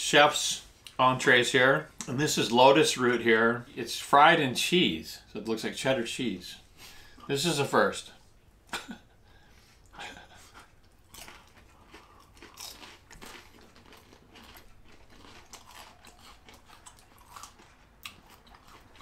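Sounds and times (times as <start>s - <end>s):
crunching and chewing food: 9.4s - 19.0s.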